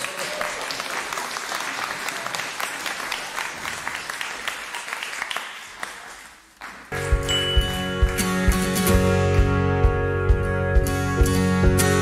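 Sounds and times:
audience applauding: 0:00.0 - 0:08.9
music with chimes: 0:07.0 - 0:09.0.

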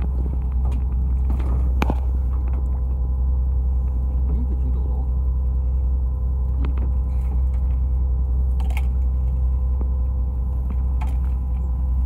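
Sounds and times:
boat engine rumbling: 0:00.0 - 0:12.0
faint steady hum: 0:00.0 - 0:12.0.

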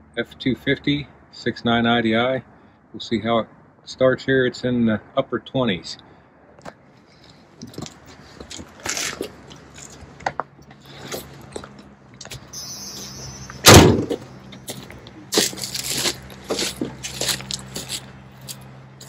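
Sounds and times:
diesel engine starting and idling: 0:10.6 - 0:19.0
door slamming: 0:13.6 - 0:14.2.

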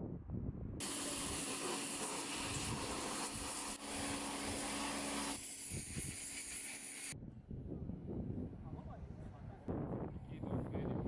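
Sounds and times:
pump humming: 0:00.8 - 0:07.2
water jet hissing: 0:00.8 - 0:07.2.

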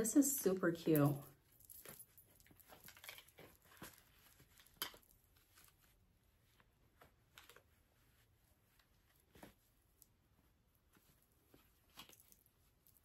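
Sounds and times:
soft fabric rustling: 0:00.0 - 0:13.0.

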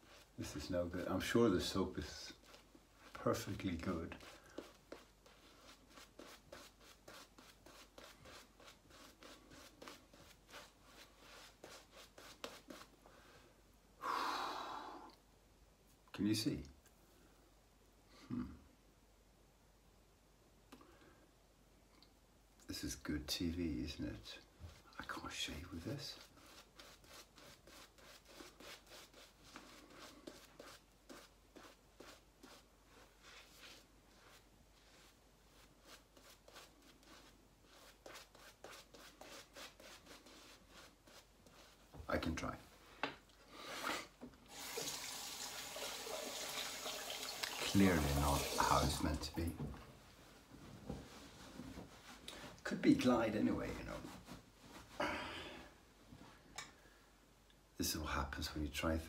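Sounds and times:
hand rubbing lather on face: 0:00.0 - 0:12.9, 0:25.8 - 0:42.3, 0:46.0 - 0:49.2.

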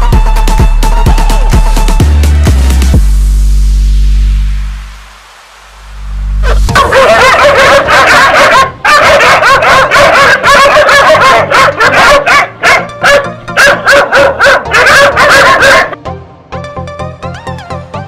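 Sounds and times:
background music: 0:00.0 - 0:18.0
dog barking and yipping: 0:06.4 - 0:16.0.

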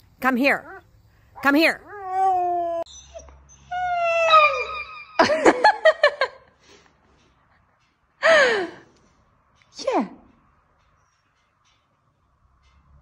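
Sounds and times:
dogs yipping: 0:01.8 - 0:05.2.

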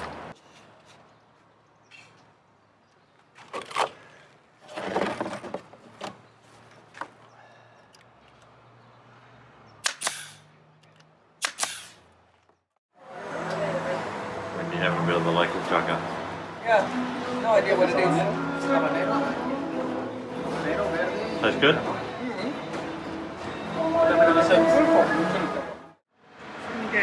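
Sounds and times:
staple gun firing into wood: 0:09.8 - 0:10.4, 0:11.4 - 0:12.0.

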